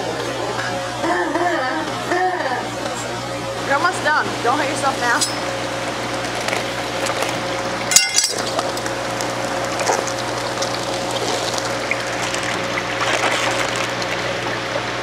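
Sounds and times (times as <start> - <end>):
steady hum: 0.0 - 15.0
water sloshing and pouring: 6.2 - 15.0.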